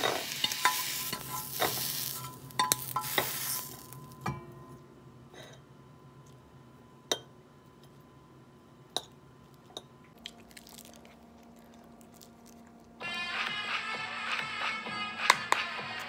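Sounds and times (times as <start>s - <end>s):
music: 13.0s - 16.0s.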